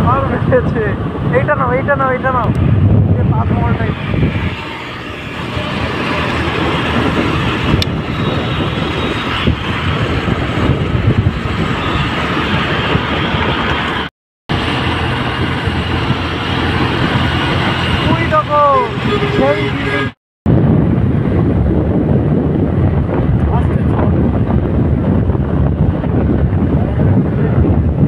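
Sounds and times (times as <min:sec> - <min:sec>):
passing cars: 0:00.0 - 0:20.2
road noise: 0:00.0 - 0:28.0.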